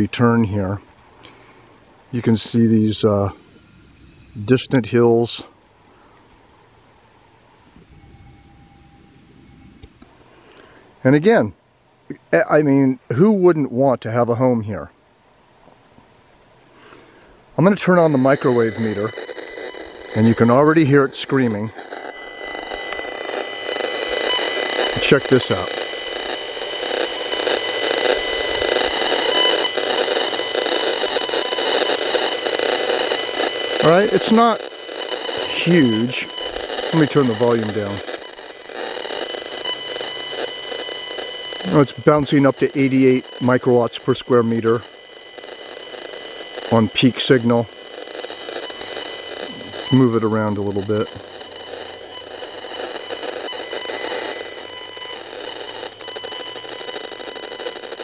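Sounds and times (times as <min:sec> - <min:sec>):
crackling hiss: 0:00.0 - 0:13.7, 0:14.5 - 0:58.0
rf meter pulsing electronic buzz: 0:02.1 - 0:05.5, 0:07.6 - 0:10.6, 0:16.8 - 0:58.0
steady high tone: 0:02.1 - 0:05.6, 0:07.1 - 0:10.6, 0:16.9 - 0:58.0.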